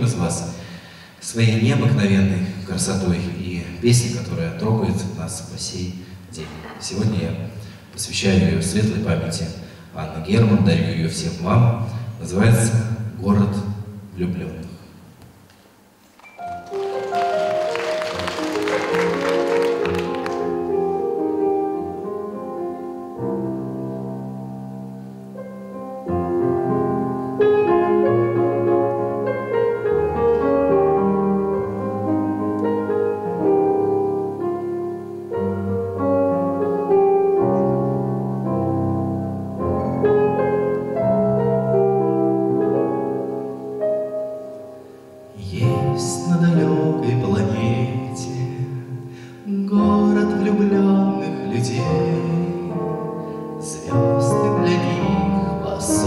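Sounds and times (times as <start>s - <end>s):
slow piano melody over chords: 16.2s - 56.0s.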